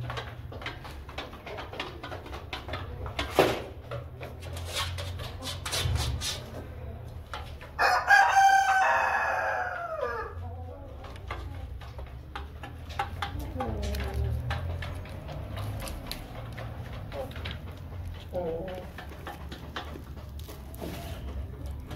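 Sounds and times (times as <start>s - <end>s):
rooster crowing: 7.8s - 10.4s.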